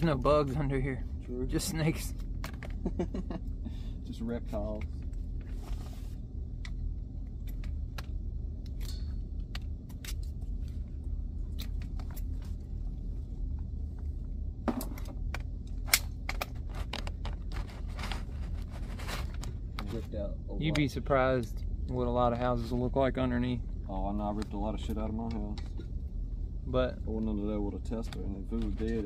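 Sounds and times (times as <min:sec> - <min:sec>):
steady low hum: 0:00.0 - 0:29.0
tools and wire clicking: 0:06.6 - 0:10.4.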